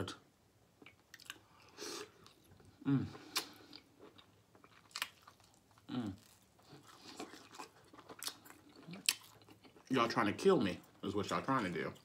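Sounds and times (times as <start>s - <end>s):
chewing and mouth sounds: 0.8s - 10.2s.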